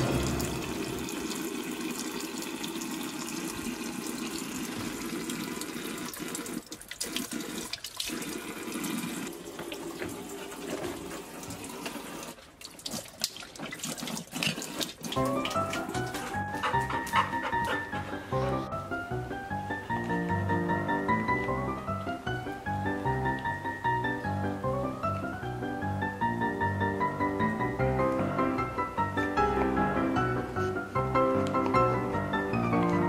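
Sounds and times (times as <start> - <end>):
tap water splashing into sink: 0.0 - 16.3
puppy lapping water: 9.6 - 18.8.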